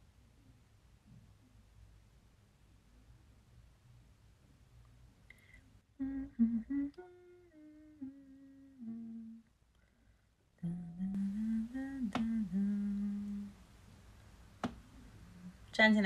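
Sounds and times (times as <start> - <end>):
woman humming a slow tune: 6.0 - 9.5, 10.6 - 13.6.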